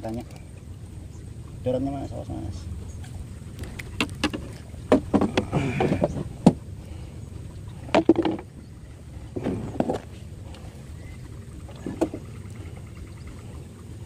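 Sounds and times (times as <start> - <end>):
low steady rumble: 0.0 - 14.0
sharp clicks and knocks: 3.6 - 6.6.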